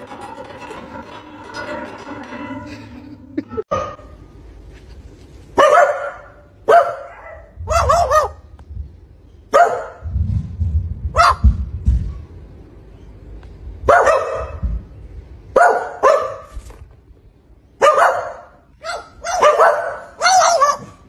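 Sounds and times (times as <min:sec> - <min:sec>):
dog barking: 0:05.6 - 0:08.4, 0:09.5 - 0:10.0, 0:11.2 - 0:11.6, 0:13.9 - 0:14.6, 0:15.6 - 0:16.5, 0:17.8 - 0:21.0
low thumps: 0:10.0 - 0:12.3.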